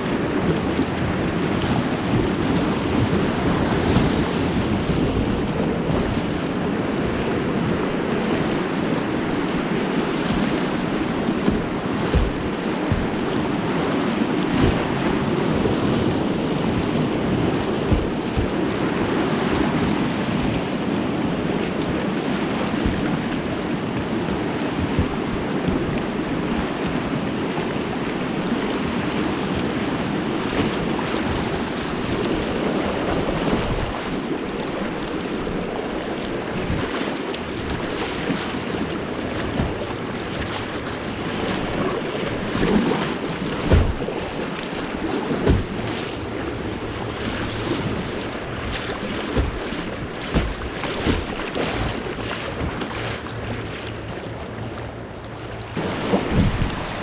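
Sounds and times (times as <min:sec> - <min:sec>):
river water rushing: 0:00.0 - 0:57.0
wind buffeting microphone: 0:00.0 - 0:57.0
low thumps: 0:10.3 - 0:13.7, 0:16.7 - 0:18.8, 0:22.7 - 0:23.5, 0:24.7 - 0:26.0, 0:43.5 - 0:44.1, 0:45.4 - 0:46.3, 0:47.8 - 0:53.5, 0:55.7 - 0:57.0.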